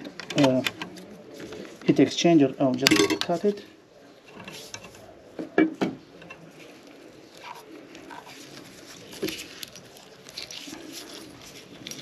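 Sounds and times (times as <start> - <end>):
rustling and clicks of tubing: 0.0 - 2.0, 4.3 - 5.5, 6.2 - 12.0.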